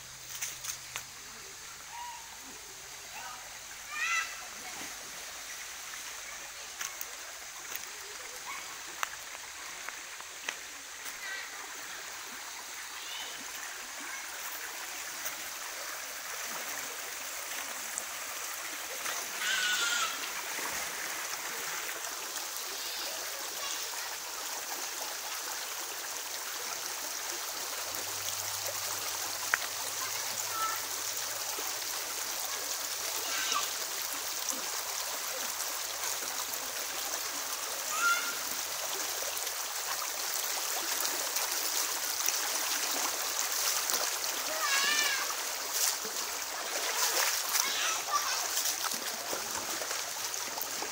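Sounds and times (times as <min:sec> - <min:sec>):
stream running over stones: 0:00.0 - 0:50.9
short high calls: 0:01.8 - 0:02.4.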